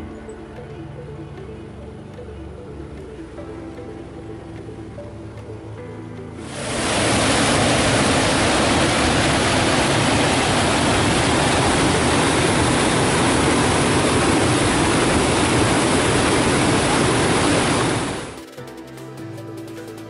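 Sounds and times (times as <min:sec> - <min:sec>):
river rapids rushing over rocks: 0:06.4 - 0:18.4.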